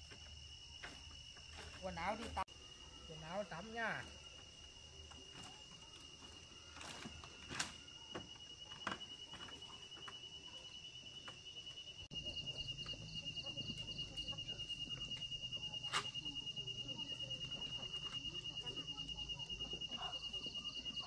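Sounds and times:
insect trilling: 0:00.0 - 0:21.0.

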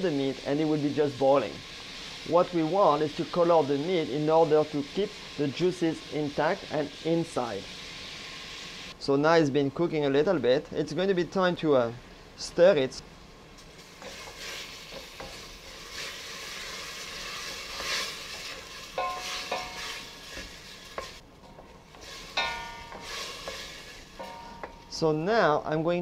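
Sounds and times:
meat sizzling in a pot: 0:00.0 - 0:09.0, 0:13.5 - 0:25.0
wooden spoon scraping a pot: 0:14.0 - 0:24.8.

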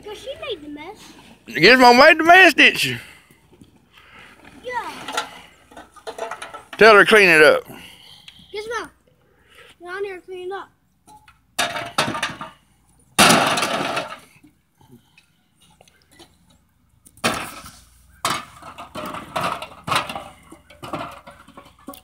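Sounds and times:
crushed cans clattering: 0:04.7 - 0:07.5, 0:11.1 - 0:12.6, 0:13.2 - 0:14.3, 0:17.2 - 0:22.0.

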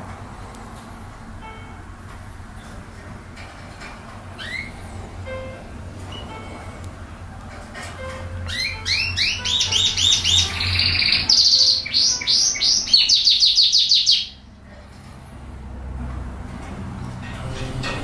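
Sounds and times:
canary singing trills: 0:04.4 - 0:05.5, 0:08.3 - 0:14.6.

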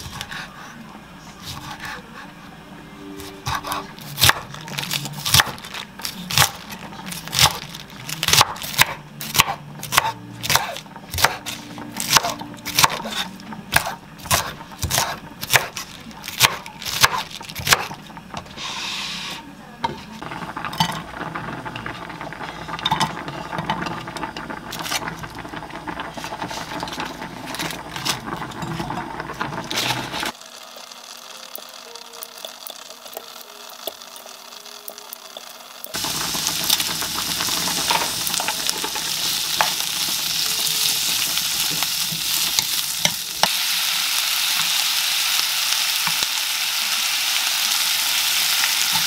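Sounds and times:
knife chopping on wooden board: 0:12.1 - 0:15.8.

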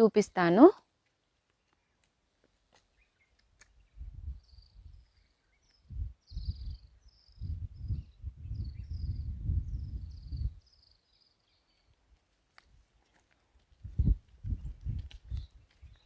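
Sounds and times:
wind buffeting microphone: 0:03.8 - 0:05.2, 0:05.8 - 0:10.8, 0:13.7 - 0:16.0.

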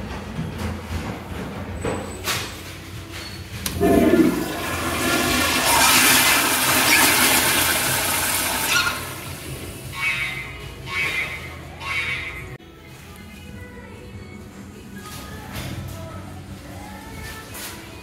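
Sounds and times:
toilet flushing: 0:03.6 - 0:10.0
water rushing through bowl: 0:03.7 - 0:09.7
water gushing: 0:03.7 - 0:09.8.

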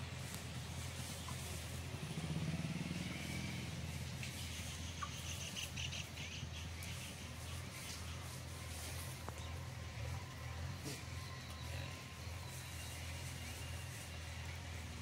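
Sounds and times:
vehicle engine running: 0:00.0 - 0:15.0
small birds chirping: 0:03.0 - 0:15.0.

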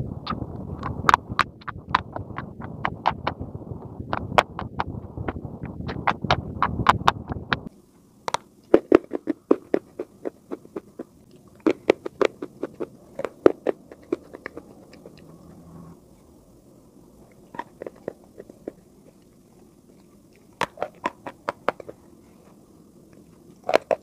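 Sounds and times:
chalk being chewed: 0:08.3 - 0:15.6, 0:17.3 - 0:24.0.

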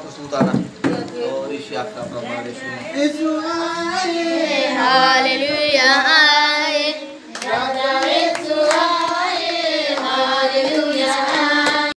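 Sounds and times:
voices singing devotional song: 0:00.1 - 0:12.0
hand claps: 0:07.3 - 0:09.3, 0:09.9 - 0:12.0.

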